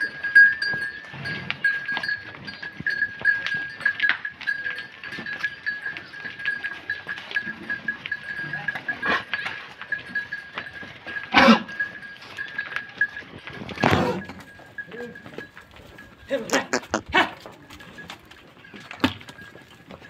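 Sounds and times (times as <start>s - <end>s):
cattle hoof steps: 0.0s - 20.0s.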